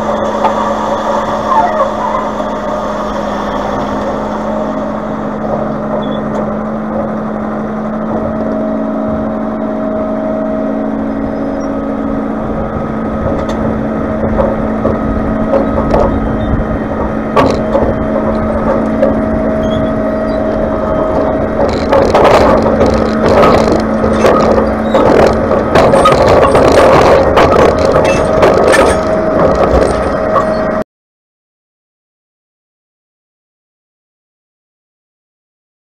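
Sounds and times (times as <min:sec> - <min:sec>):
tractor engine running: 0:00.0 - 0:30.8
steel trailer bed banging and rattling: 0:13.1 - 0:30.7.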